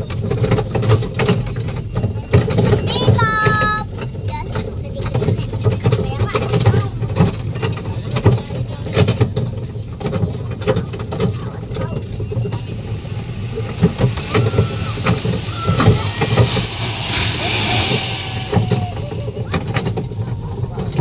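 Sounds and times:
low engine-like rumble: 0.0s - 21.0s
brief hiss: 13.2s - 19.7s.

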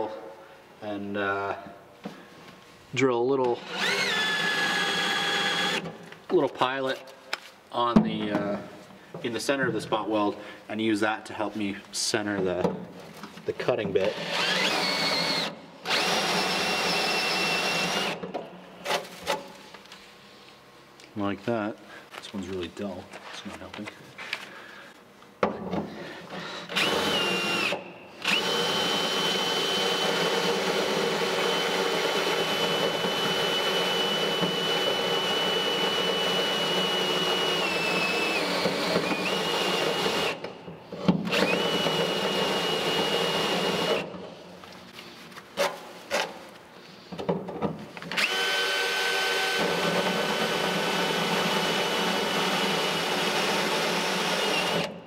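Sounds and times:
electric drill cutting steel: 3.6s - 5.9s, 14.1s - 18.2s, 26.7s - 40.4s, 41.3s - 44.0s, 48.2s - 55.0s.

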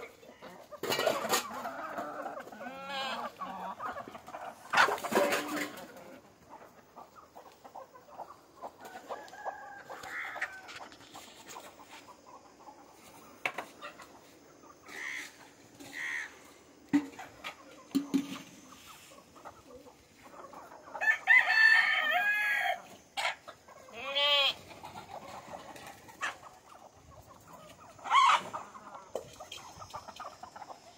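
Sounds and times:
chickens clucking: 0.0s - 30.9s
rooster crowing: 9.0s - 10.8s, 21.0s - 22.9s.

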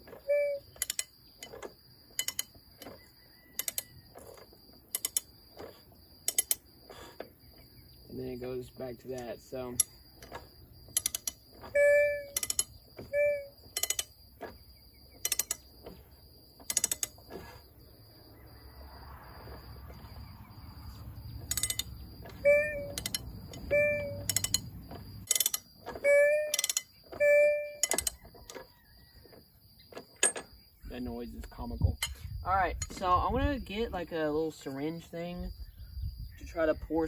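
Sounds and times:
ratchet clicks and knocks: 0.0s - 7.2s, 9.1s - 17.5s, 21.4s - 28.7s, 29.3s - 30.6s
engine squeaking: 0.0s - 35.8s.

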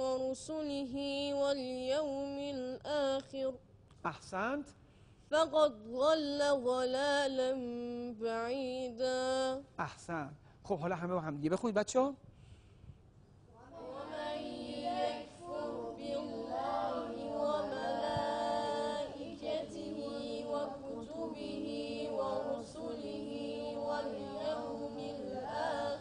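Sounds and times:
boys chanting in unison: 13.6s - 26.0s.

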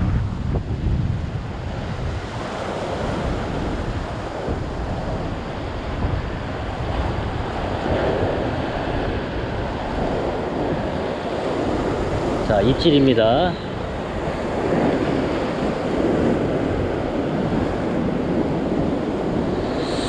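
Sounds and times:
wind buffeting microphone: 0.0s - 20.0s
ocean surf washing around rocks: 0.1s - 20.0s.

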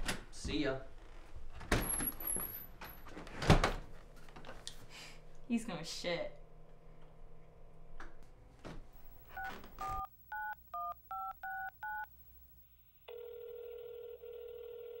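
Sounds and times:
telephone ringing tone: 9.3s - 12.1s, 13.0s - 15.0s
touch-tone telephone dialling beeps: 9.4s - 12.1s, 13.1s - 15.0s.

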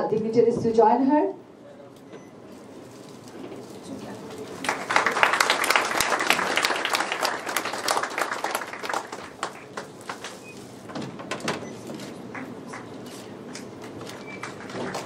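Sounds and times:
audience applauding: 4.5s - 10.5s, 12.2s - 13.0s, 13.7s - 15.0s.

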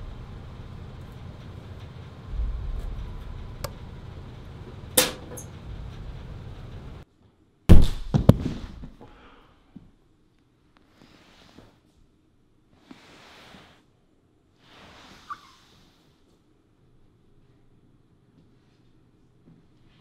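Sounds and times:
low steady rumble: 0.0s - 7.0s.

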